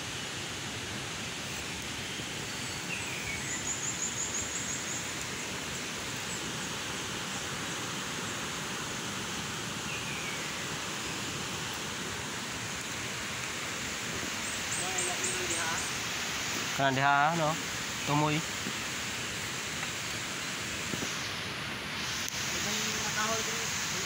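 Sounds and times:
steady rushing hiss: 0.0s - 24.0s
bird calls: 2.4s - 7.5s, 9.8s - 11.3s, 14.1s - 16.1s.

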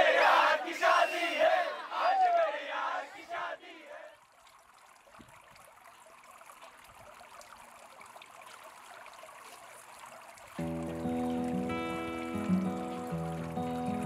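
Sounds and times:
crowd shouting: 0.0s - 4.2s
pool water trickling: 0.0s - 14.0s.

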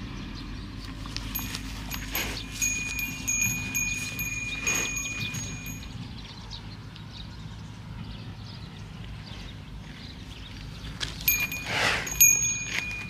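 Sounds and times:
cow blowing breath: 1.0s - 5.7s, 11.2s - 13.0s
high chime-like ringing: 1.3s - 6.1s, 11.3s - 13.0s.

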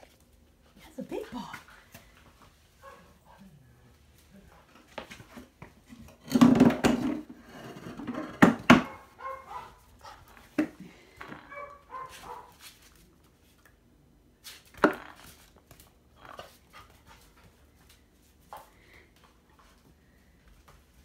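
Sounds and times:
puppy barking: 2.8s - 3.2s, 8.8s - 10.2s, 11.4s - 12.6s
puppy yipping: 8.8s - 9.8s, 11.5s - 12.5s.

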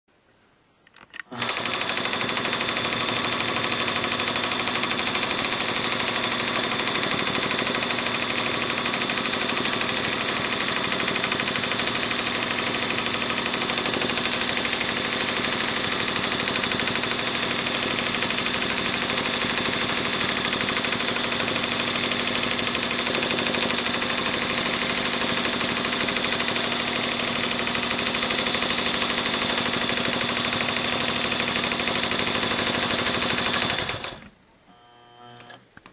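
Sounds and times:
quilting machine stitching: 1.2s - 34.4s.

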